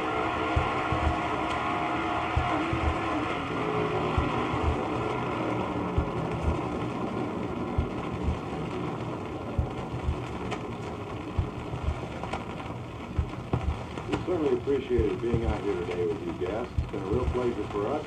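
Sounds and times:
rough racing engine recording: 0.0s - 8.6s
low thumps from damaged record: 0.3s - 5.3s, 5.9s - 18.0s.

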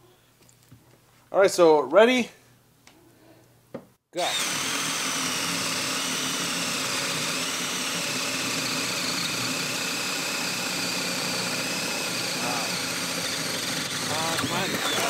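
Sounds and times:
drill bit cutting wood: 4.2s - 15.0s
drill motor whine: 4.2s - 15.0s.

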